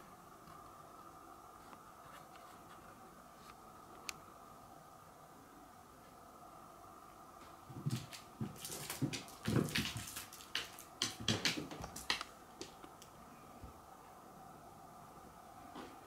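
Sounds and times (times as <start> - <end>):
cat wrestling toy on wooden floor: 7.7 - 12.8.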